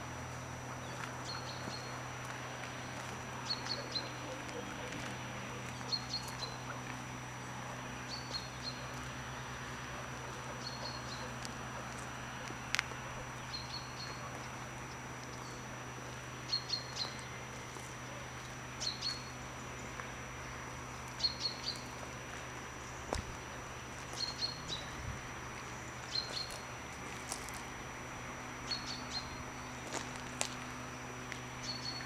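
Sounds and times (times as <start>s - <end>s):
steady low hum: 0.0s - 32.0s
small bird chirping: 28.7s - 29.4s, 31.6s - 32.0s.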